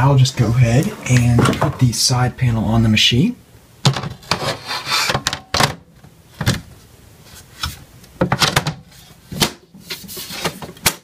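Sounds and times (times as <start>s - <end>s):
metal panel scraping: 4.2s - 5.3s.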